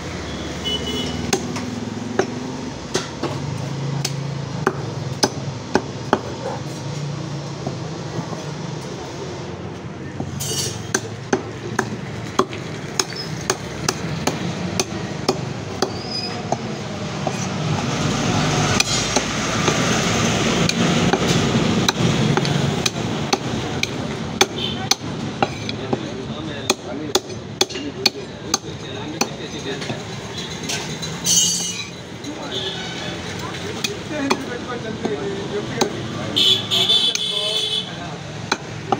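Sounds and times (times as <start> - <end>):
cleaver chopping on wooden block: 1.2 - 3.4, 4.0 - 6.4, 10.8 - 17.5, 20.6 - 30.0, 35.8 - 36.0, 38.4 - 38.9.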